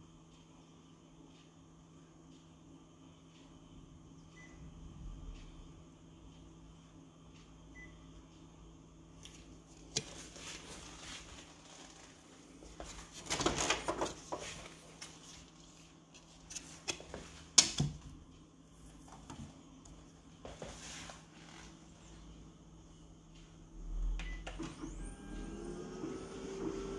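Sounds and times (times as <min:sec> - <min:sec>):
touch-panel beep: 0:04.3 - 0:04.7, 0:07.7 - 0:08.1, 0:24.2 - 0:25.7
photocopier humming: 0:24.4 - 0:26.9.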